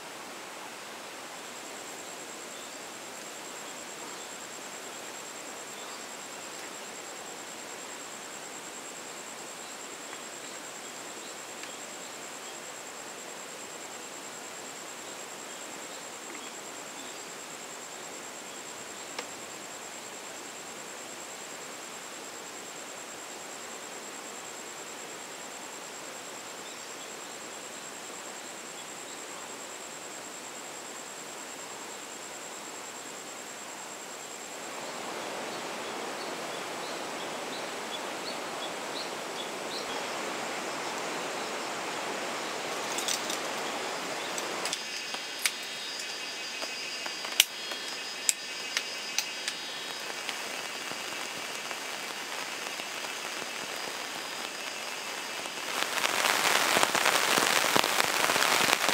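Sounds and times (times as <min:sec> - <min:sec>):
river flowing: 0:32.0 - 0:58.9.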